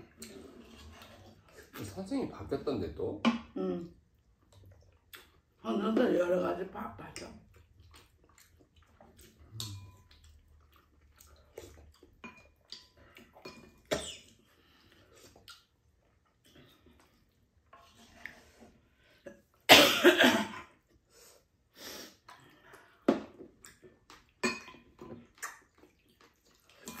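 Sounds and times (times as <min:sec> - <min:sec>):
person coughing: 0:19.7 - 0:20.7.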